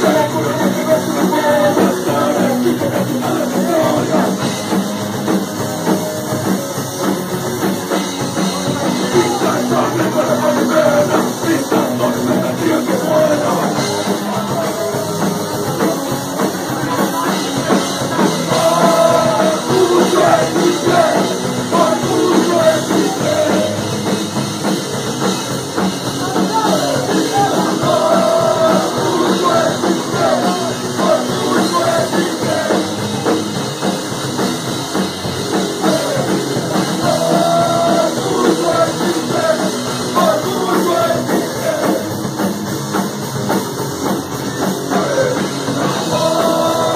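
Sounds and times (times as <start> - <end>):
person singing: 0.0 - 4.5, 8.9 - 16.0, 18.5 - 23.8, 35.8 - 42.1, 44.9 - 46.9
amplified rock instruments: 0.0 - 46.9
drum kit: 0.0 - 46.9.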